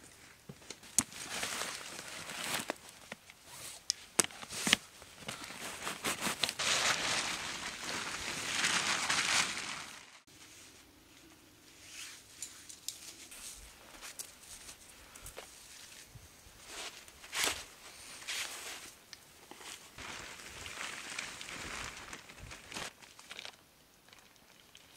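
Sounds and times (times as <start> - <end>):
plastic tarp crinkling: 1.0 - 3.0, 4.4 - 10.3, 20.0 - 23.6.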